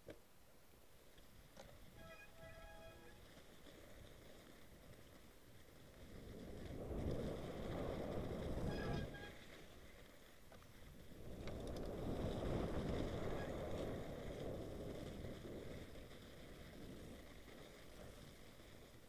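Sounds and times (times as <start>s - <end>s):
bike tyres rolling through snow: 0.0s - 19.0s
faint clicks: 10.5s - 12.0s.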